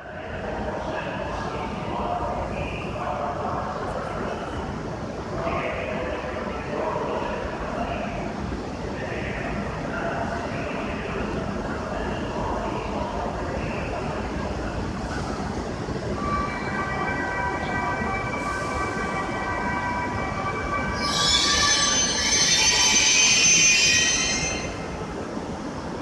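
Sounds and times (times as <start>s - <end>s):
train whine: 0.0s - 26.0s
high-pitched train squeal: 16.2s - 24.9s.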